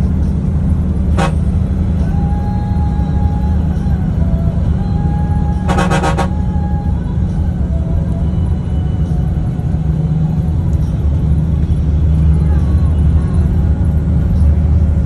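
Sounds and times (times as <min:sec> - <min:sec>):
bus engine and road rumble: 0:00.0 - 0:15.0
stuttering vehicle horn: 0:01.1 - 0:01.6, 0:05.4 - 0:06.7.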